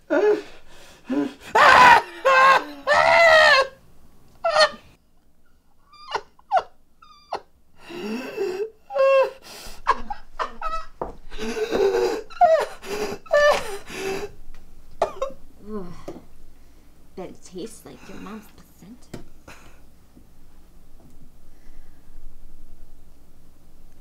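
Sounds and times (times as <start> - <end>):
man screaming in pain: 1.5 - 3.7
man gasping and whimpering: 7.8 - 10.0, 11.3 - 14.4.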